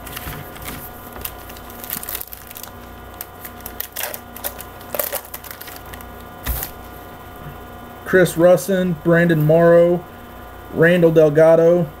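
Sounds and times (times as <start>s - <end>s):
card wrappers crinkling: 0.0s - 6.8s.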